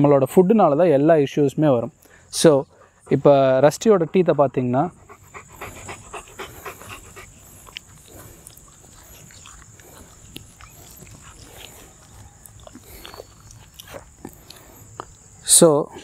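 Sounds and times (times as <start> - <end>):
dog breathing softly: 2.1 - 12.1
wet lip and tongue clicks: 5.1 - 15.3.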